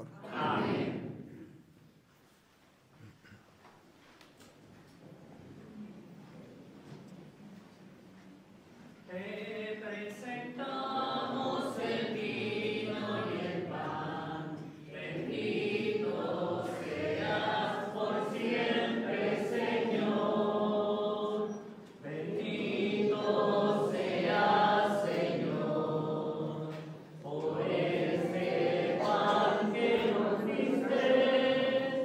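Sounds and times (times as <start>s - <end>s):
group singing a hymn: 0.0s - 1.5s, 9.1s - 32.0s.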